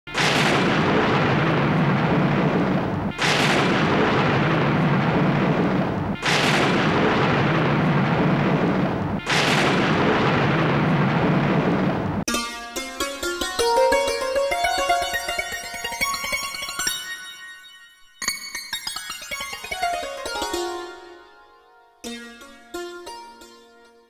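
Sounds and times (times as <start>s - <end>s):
loud booming crashes: 0.1s - 12.3s.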